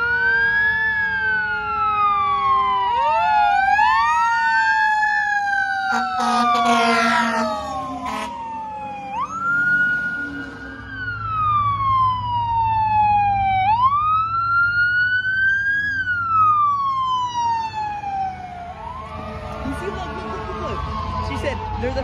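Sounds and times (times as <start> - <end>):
siren wailing: 0.0 - 22.0.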